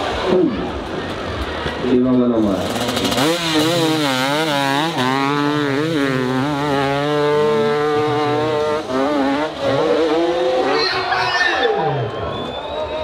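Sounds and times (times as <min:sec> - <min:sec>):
dirt bike engine revving: 0:02.4 - 0:12.1.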